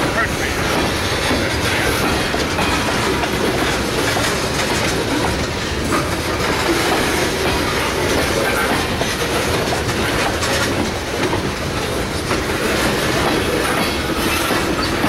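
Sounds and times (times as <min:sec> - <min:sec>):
train wheels rumbling on track: 0:00.0 - 0:15.0
wheels clicking over rail joints: 0:00.0 - 0:15.0.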